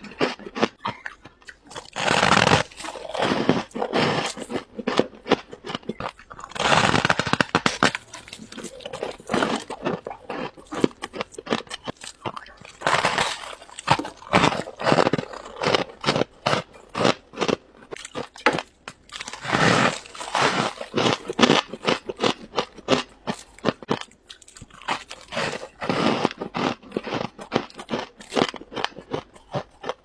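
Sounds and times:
frost being crunched by chewing: 0.0 - 30.0.

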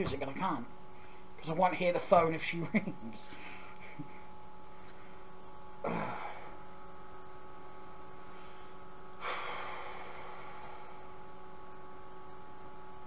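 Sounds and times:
steady electrical hum: 0.0 - 13.0
sharp breath out: 9.2 - 10.8.

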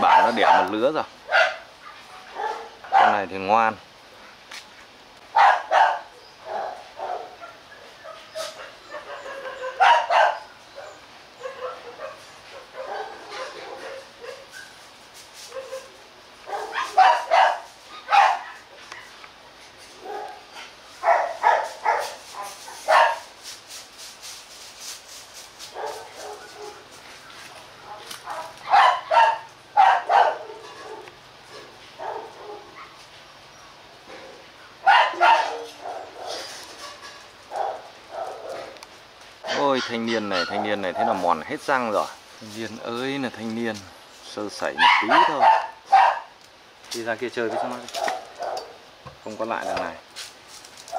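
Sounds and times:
dogs barking: 0.0 - 3.3, 5.3 - 14.5, 15.5 - 19.2, 20.0 - 23.3, 25.7 - 26.9, 27.8 - 33.0, 34.1 - 36.5, 37.5 - 38.8, 39.4 - 41.4, 44.6 - 46.4, 47.4 - 48.9.

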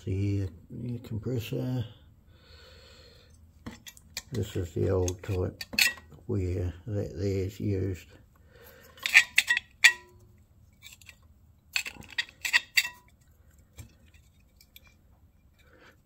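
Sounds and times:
metal brackets clicking and clinking: 3.7 - 6.2, 8.9 - 10.2, 10.8 - 15.6.

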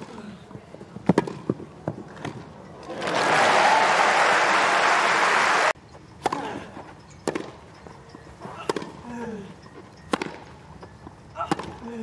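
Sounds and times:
crowd applauding: 2.9 - 5.8
tennis ball being struck: 10.1 - 10.4.

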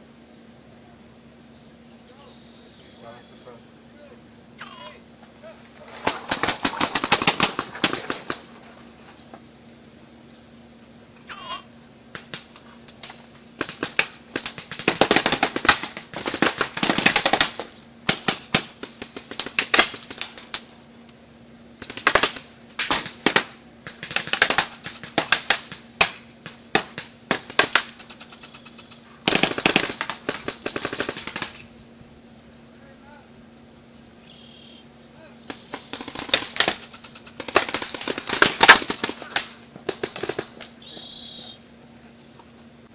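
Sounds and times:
paintball markers firing: 6.1 - 8.5, 13.6 - 20.6, 21.8 - 28.6, 29.2 - 31.7, 35.5 - 40.7.

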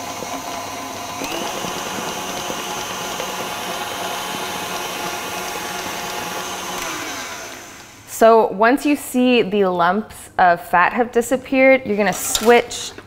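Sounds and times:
stand mixer whisking: 0.0 - 8.1.

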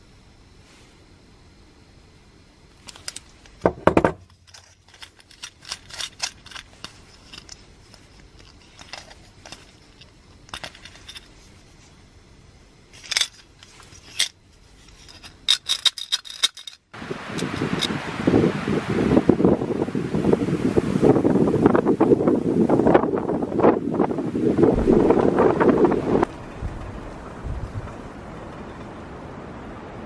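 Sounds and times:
small metal clicks and clinks: 2.8 - 3.6, 4.2 - 11.4, 13.0 - 17.9
light rattling clinks: 4.2 - 11.4, 13.0 - 17.9.

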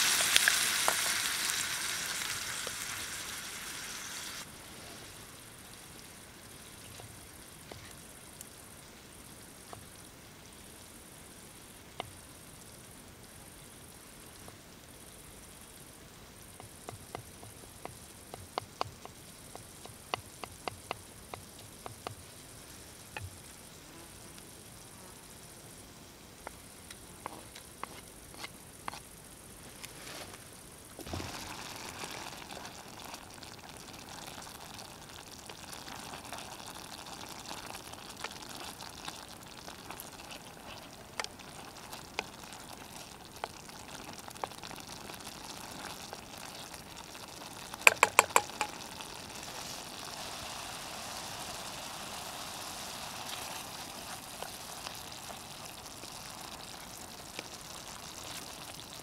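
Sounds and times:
food sizzling and bubbling: 0.0 - 59.0
tomatoes dropping into frying pan: 47.8 - 48.8
sharp knocks: 47.9 - 48.7
wooden spoon clicking against pan: 47.9 - 48.8.

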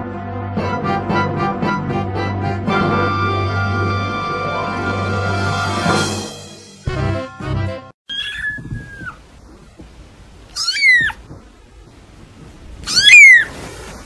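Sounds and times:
kitten mewing: 8.1 - 9.2, 10.5 - 11.4, 12.8 - 13.5.

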